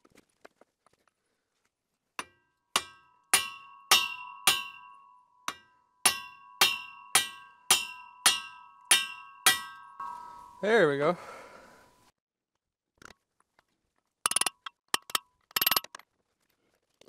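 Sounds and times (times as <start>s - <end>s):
hammer striking steel with ringing: 2.2s - 10.7s.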